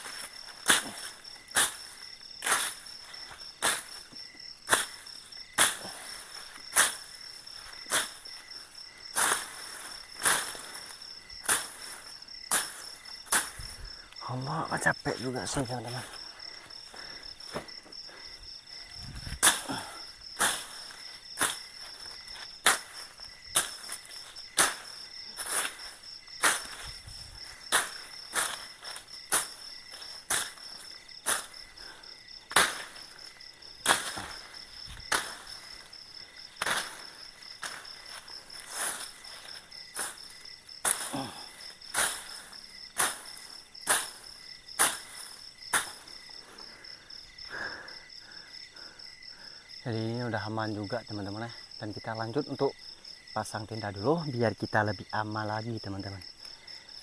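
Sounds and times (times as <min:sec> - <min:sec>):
machete chopping undergrowth: 0:00.0 - 0:02.9, 0:03.6 - 0:04.0, 0:04.6 - 0:08.6, 0:09.2 - 0:13.9, 0:19.2 - 0:31.7, 0:32.5 - 0:46.3
insects chirring: 0:00.0 - 0:57.0.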